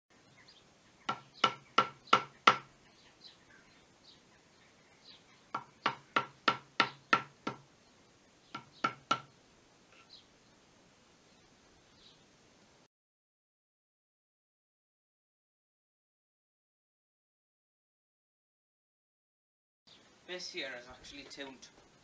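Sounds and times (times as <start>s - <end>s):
mallet striking chisel into wood: 1.1s - 2.7s, 5.5s - 7.6s, 8.6s - 9.3s.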